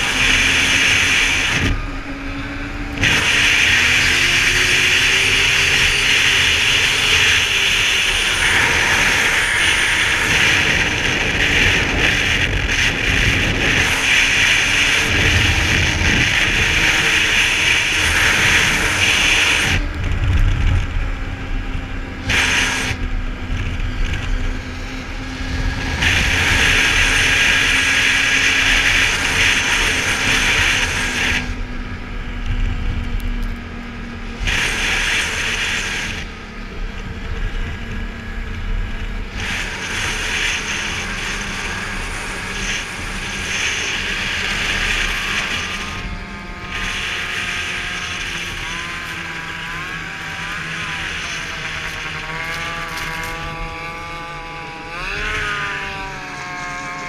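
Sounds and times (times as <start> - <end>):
high hiss over snow: 0.0 - 1.8, 3.0 - 19.9, 22.2 - 23.0, 25.7 - 31.6, 34.4 - 36.4, 39.3 - 53.5
snowmobile engine drone: 0.0 - 57.0.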